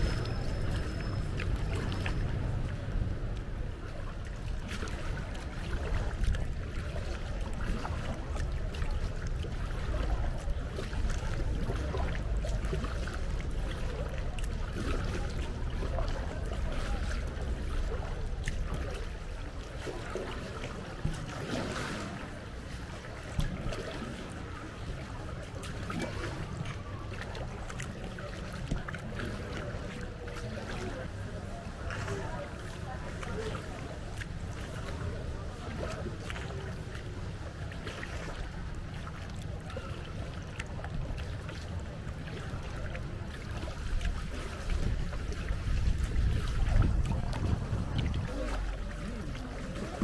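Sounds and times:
steady low rumble: 0.0 - 19.8, 40.4 - 50.0
paddle blades dipping in water: 0.0 - 50.0
water trickling and splashing: 0.0 - 50.0.

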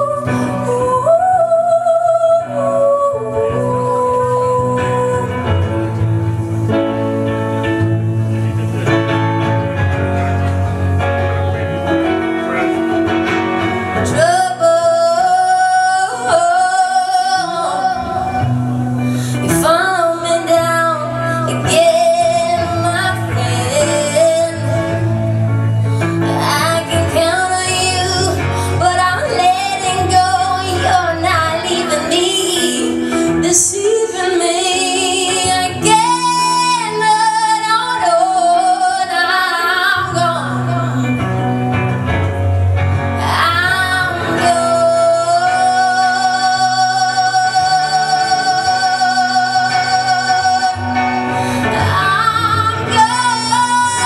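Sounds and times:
woman singing: 0.0 - 7.0, 13.9 - 41.9, 43.0 - 54.0
low bass notes: 0.0 - 32.3
electric guitar: 0.0 - 54.0.

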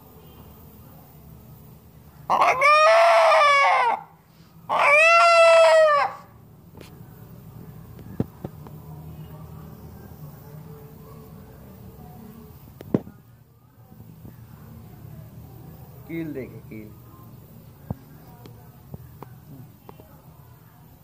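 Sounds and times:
rooster crowing: 2.3 - 6.4.

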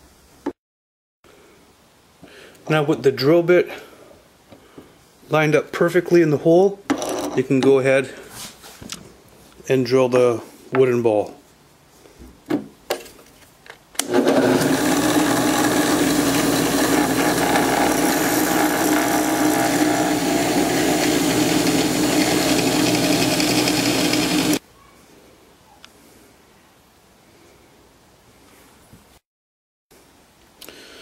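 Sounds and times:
drill press motor running: 14.0 - 24.6.

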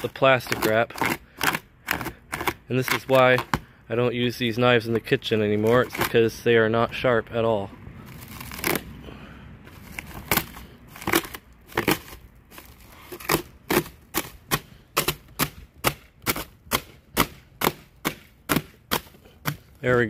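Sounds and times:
knife sawing plastic wrap: 0.0 - 3.6, 5.3 - 6.2, 8.1 - 8.9, 9.7 - 19.8.

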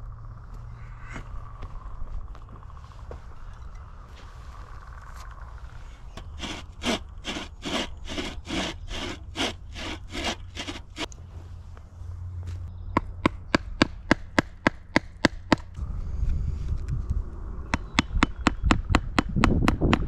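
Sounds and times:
bow saw cutting wood: 6.2 - 11.1.

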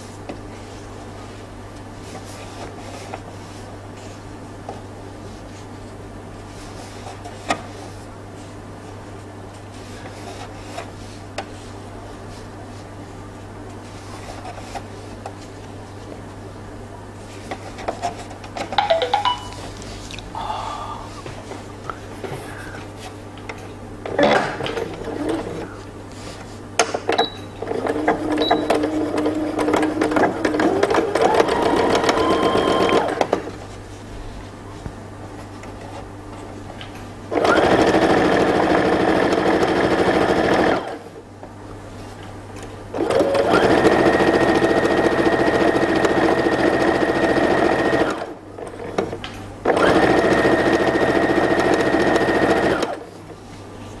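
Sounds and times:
sewing machine stitching: 24.1 - 25.7, 27.6 - 33.4, 37.3 - 41.0, 43.0 - 49.0, 49.6 - 53.1.

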